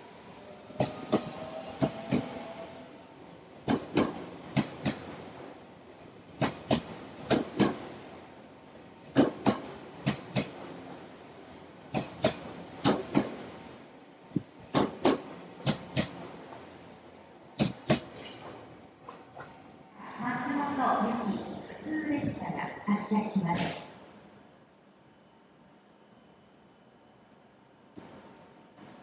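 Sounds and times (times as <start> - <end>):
train wheels clicking over rail joint: 0.7 - 2.4, 3.6 - 5.1, 6.4 - 7.9, 9.1 - 10.6, 11.9 - 13.5, 14.4 - 16.2, 17.6 - 19.6.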